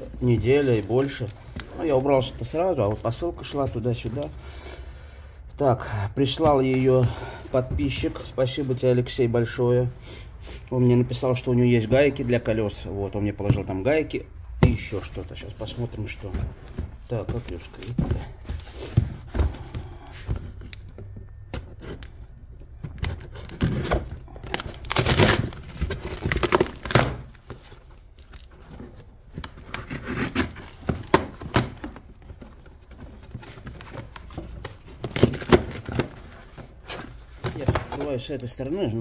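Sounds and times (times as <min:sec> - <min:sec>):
cardboard ripped by hand: 0:23.0 - 0:27.3.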